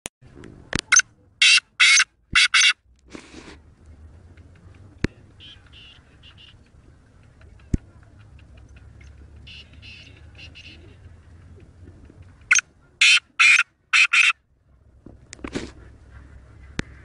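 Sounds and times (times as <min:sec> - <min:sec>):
bird rasping call: 0:01.4 - 0:02.8, 0:05.4 - 0:06.7, 0:08.8 - 0:11.1, 0:12.5 - 0:14.4.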